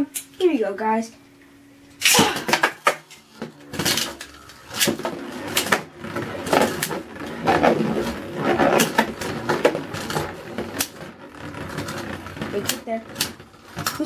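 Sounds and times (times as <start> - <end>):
spinning tops whirring: 1.9 - 14.0
ripcord launch rasp: 2.0 - 2.9.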